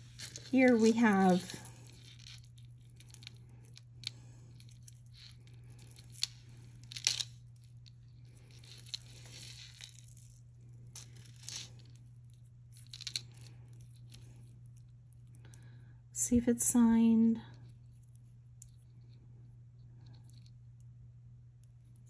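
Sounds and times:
rustling and crinkling: 0:00.0 - 0:15.7
steady low hum: 0:00.0 - 0:22.0.

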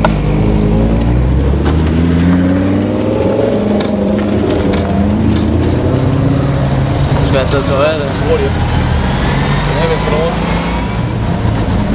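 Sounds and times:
low engine hum: 0:00.0 - 0:11.9
sports car engines passing: 0:00.0 - 0:11.9.

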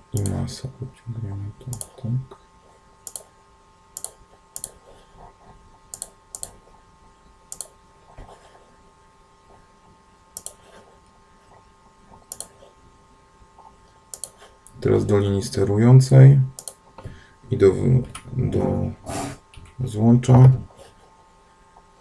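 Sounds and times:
faint steady hum: 0:00.0 - 0:22.0
computer mouse clicking: 0:00.2 - 0:00.4, 0:01.7 - 0:02.0, 0:03.0 - 0:03.3, 0:04.0 - 0:04.8, 0:05.9 - 0:06.6, 0:07.5 - 0:07.8, 0:10.4 - 0:10.8, 0:12.3 - 0:12.6, 0:14.1 - 0:14.8, 0:16.6 - 0:16.8.

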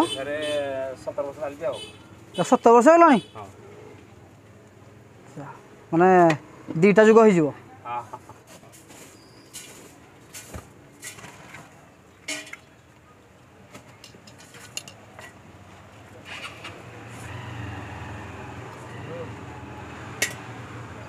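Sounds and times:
faint traffic: 0:00.0 - 0:21.0
steel utensils clinking: 0:14.0 - 0:15.4.

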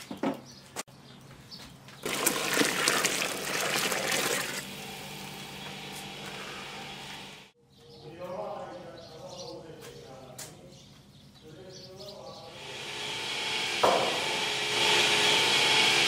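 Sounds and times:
broth bubbling at rolling boil: 0:02.0 - 0:05.4.

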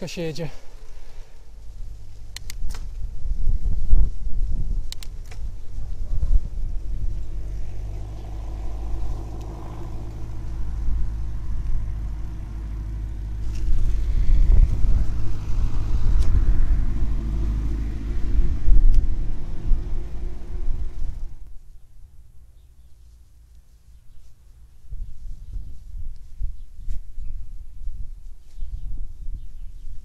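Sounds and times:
heavy low rumble: 0:01.5 - 0:23.6
bicycle tyres rolling on road: 0:03.0 - 0:21.5.

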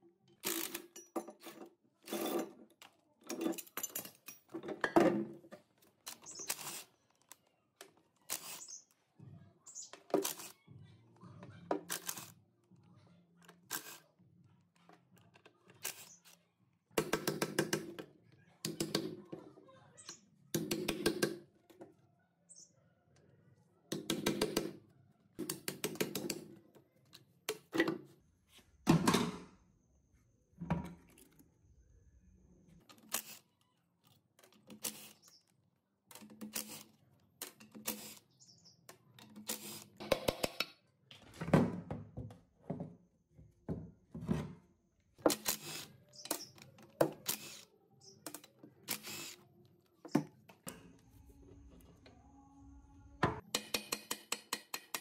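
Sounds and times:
metal parts knocking and clinking: 0:00.5 - 0:05.2.

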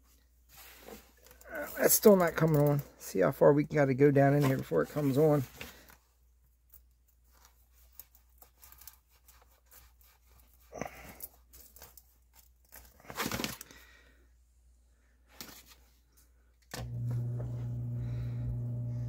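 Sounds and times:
hands rustling and scraping plastic: 0:00.5 - 0:02.9, 0:04.2 - 0:13.8
sump pump motor humming: 0:16.8 - 0:19.0.

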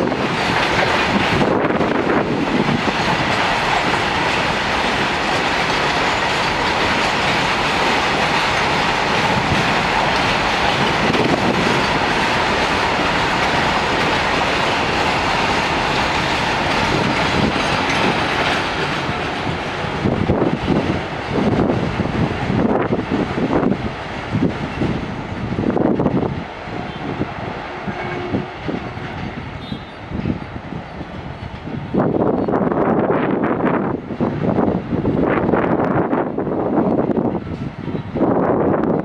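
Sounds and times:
wheels rolling on rails: 0:00.0 - 0:26.6.

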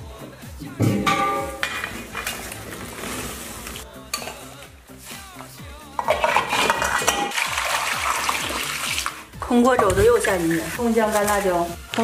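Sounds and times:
background music: 0:00.0 - 0:12.0
metal wok lid clanking: 0:00.8 - 0:02.4
metal skimmer scraping a bowl: 0:06.0 - 0:09.1, 0:09.7 - 0:11.3.

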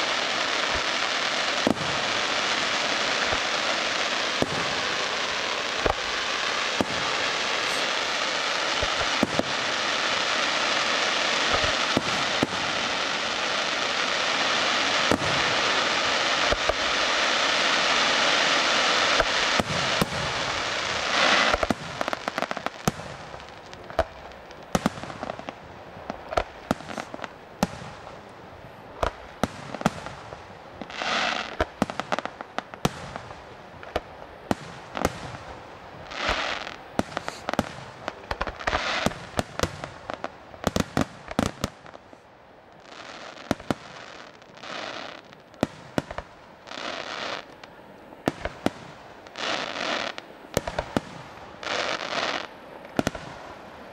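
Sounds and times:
fireworks bangs: 0:00.0 - 0:53.9
fireworks hissing: 0:00.0 - 0:53.9.

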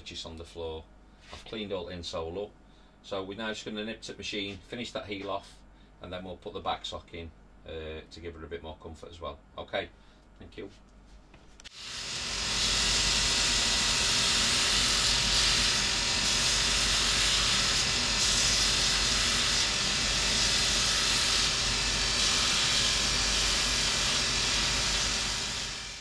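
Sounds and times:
finishing machine wheel hissing: 0:11.7 - 0:26.0.

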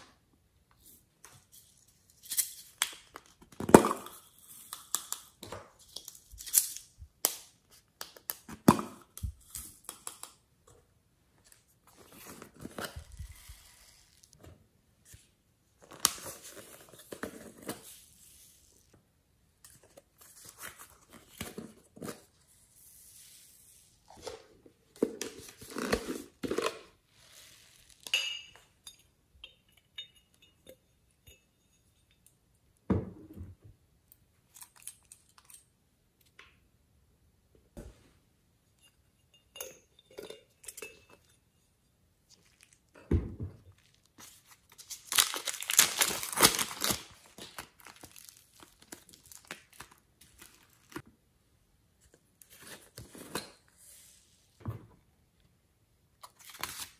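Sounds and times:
plastic jars handled and opened: 0:00.0 - 0:19.0, 0:19.6 - 0:22.6, 0:24.1 - 0:30.8, 0:33.0 - 0:36.7, 0:42.3 - 0:51.2, 0:52.0 - 0:55.1
plastic crinkling: 0:43.7 - 0:51.0.

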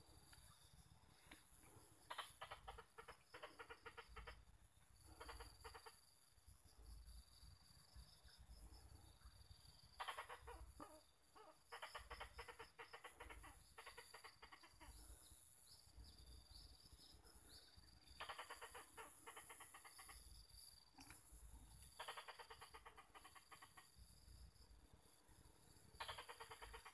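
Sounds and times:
rapid clucking animal calls: 0:00.4 - 0:06.2, 0:09.9 - 0:15.5, 0:17.2 - 0:24.4, 0:25.9 - 0:26.9.

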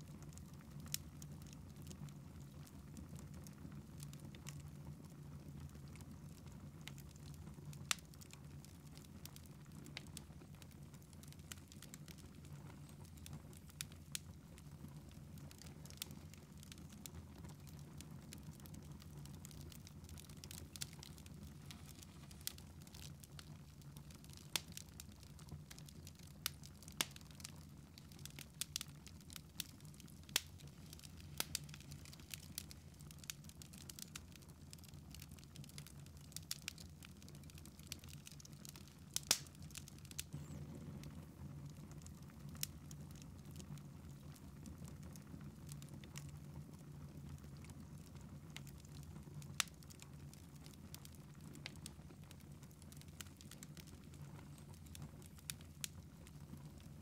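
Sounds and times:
wood fire crackling and popping: 0:00.0 - 0:57.0
low steady hum: 0:39.0 - 0:42.3.

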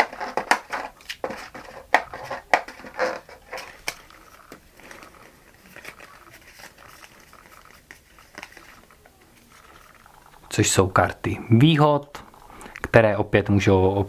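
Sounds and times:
cards clicking and scraping in box: 0:00.0 - 0:10.0.

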